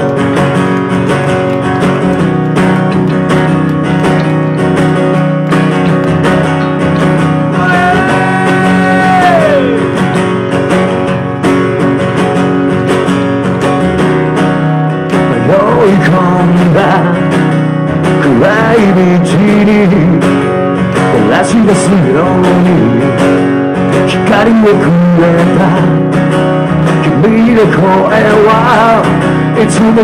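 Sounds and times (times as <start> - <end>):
electric bass: 0.0 - 30.0
strummed acoustic guitar: 0.0 - 30.0
person singing: 5.8 - 10.2, 15.2 - 17.4, 18.2 - 20.3, 21.0 - 23.2.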